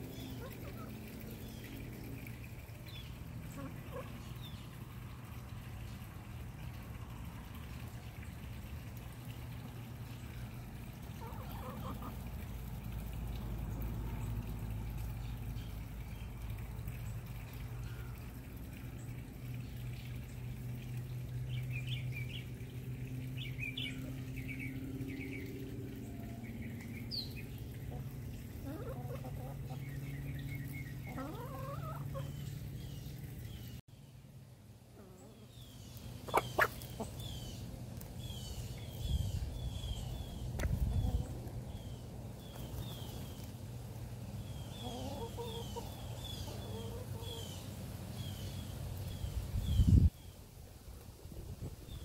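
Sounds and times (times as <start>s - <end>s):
hens clucking: 3.4s - 4.4s, 11.0s - 12.5s, 27.9s - 29.9s, 31.0s - 32.4s, 36.2s - 37.3s, 44.6s - 47.5s
hen calls: 36.3s - 37.2s.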